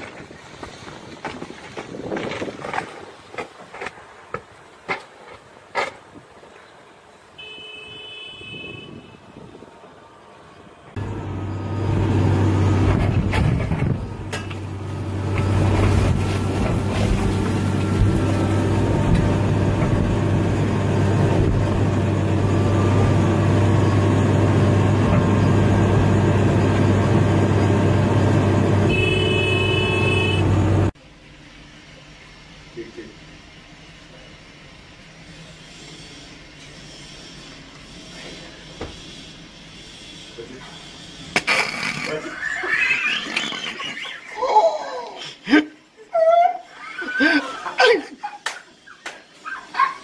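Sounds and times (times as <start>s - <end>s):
diesel engine running: 10.0s - 38.7s.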